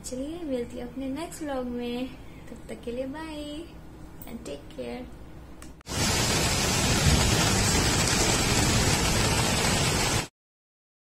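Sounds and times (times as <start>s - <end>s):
heavy rain falling on trees: 5.9s - 10.3s.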